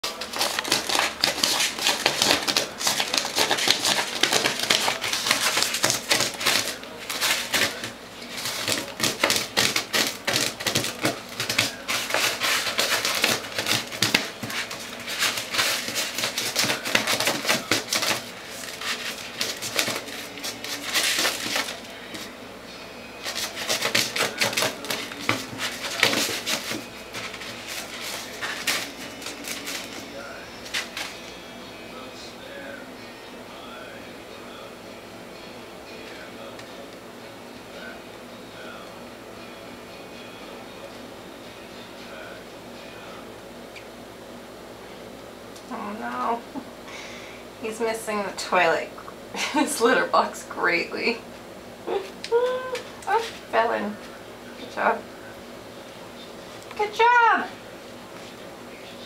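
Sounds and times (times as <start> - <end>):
cat digging in litter: 0.0 - 22.3, 23.2 - 31.2.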